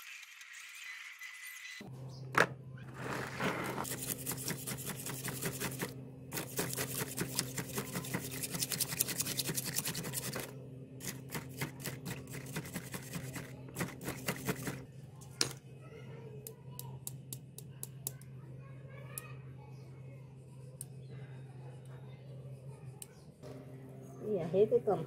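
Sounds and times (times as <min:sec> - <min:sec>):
steady low hum: 0:01.8 - 0:25.0
wire brush scrubbing metal: 0:03.3 - 0:14.8.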